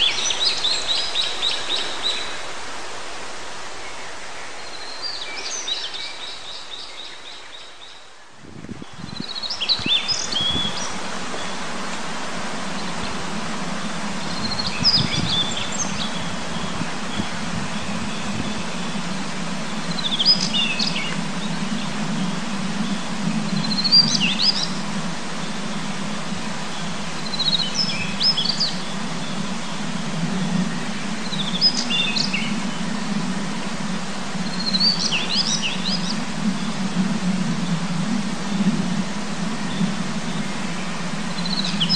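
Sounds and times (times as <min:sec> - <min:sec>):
bird singing: 0:00.0 - 0:02.6, 0:03.8 - 0:11.7, 0:12.6 - 0:33.4, 0:34.4 - 0:36.9, 0:39.6 - 0:41.9
mountain stream rushing: 0:00.0 - 0:41.9
wind gusts on microphone: 0:00.0 - 0:41.9.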